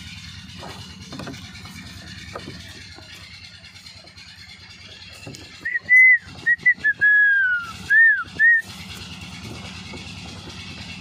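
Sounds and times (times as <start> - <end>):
low steady rumble: 0.0 - 11.0
person whistling: 5.6 - 8.7.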